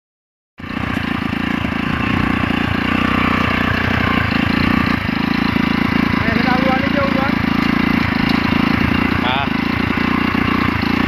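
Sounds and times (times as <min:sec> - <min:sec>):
small engine puttering: 0:00.6 - 0:11.0.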